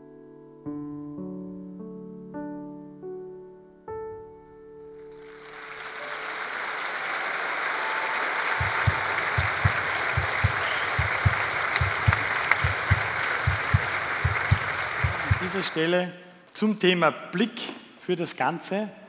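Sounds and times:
audience applause: 5.0s - 15.9s
low rhythmic thumps: 8.4s - 15.8s.

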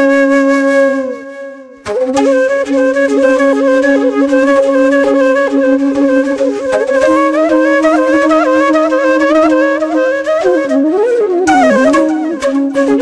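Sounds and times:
flute playing ornamented melody: 0.0s - 13.0s
held low drone note: 11.5s - 12.2s.

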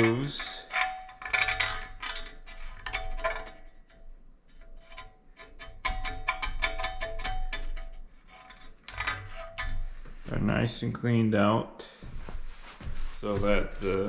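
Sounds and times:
metal pick scraping metal: 0.0s - 10.2s.

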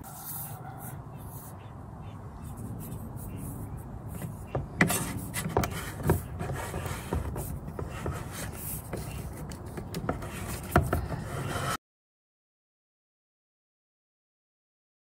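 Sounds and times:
wire scraping against plastic: 2.5s - 11.8s.

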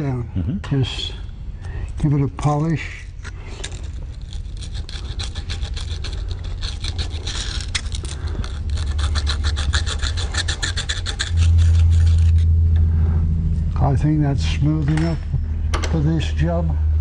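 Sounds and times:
emery cloth rubbing metal: 3.7s - 12.7s
loud low hum: 5.6s - 17.0s.

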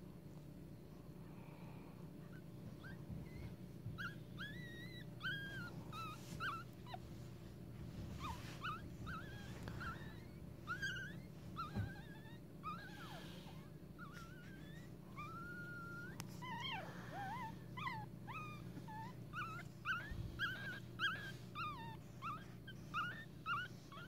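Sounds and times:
puppies squeaking and whimpering: 2.3s - 24.0s.

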